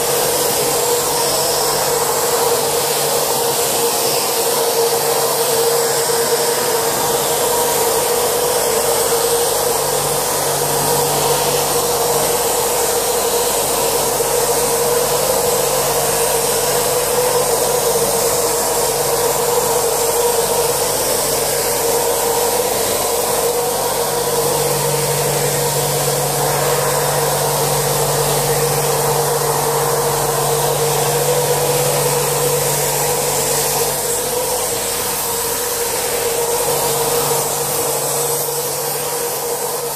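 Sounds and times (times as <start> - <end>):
air rushing through hose: 0.0 - 39.9
motor whine: 0.0 - 39.9
low hum: 20.5 - 39.9.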